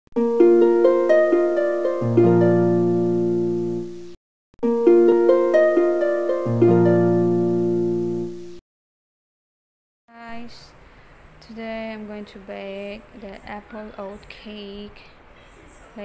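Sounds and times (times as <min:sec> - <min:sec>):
plucked harp-like notes: 0:00.2 - 0:04.0, 0:04.6 - 0:08.5.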